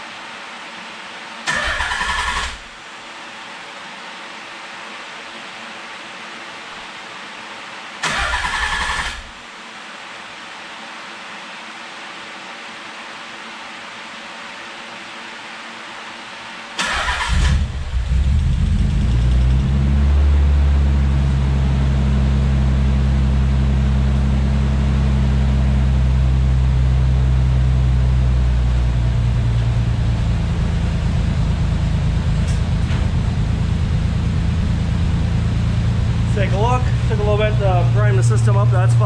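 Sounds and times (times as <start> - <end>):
car engine fast idle: 1.5 - 2.7, 8.0 - 9.3, 16.8 - 19.8, 20.8 - 39.0.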